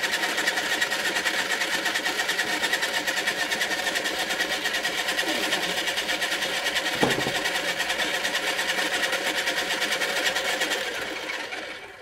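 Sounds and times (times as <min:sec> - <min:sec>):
pottery wheel motor whirring: 0:00.0 - 0:12.0
sharp knock: 0:06.9 - 0:07.4.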